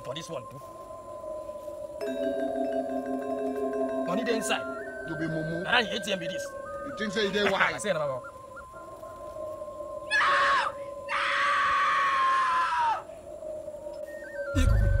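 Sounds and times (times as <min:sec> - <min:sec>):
steady droning tone: 0:00.0 - 0:11.1
screeching shrieks: 0:10.0 - 0:13.1.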